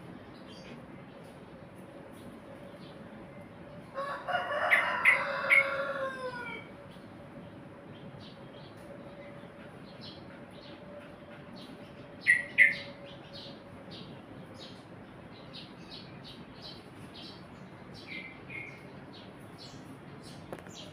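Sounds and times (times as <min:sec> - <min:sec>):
bird chirping: 0:07.8 - 0:20.9.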